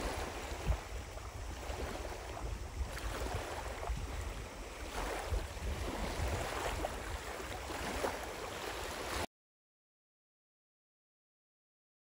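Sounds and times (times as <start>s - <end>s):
small waves lapping: 0.0s - 9.3s
wind rumbling on microphone: 0.0s - 9.3s.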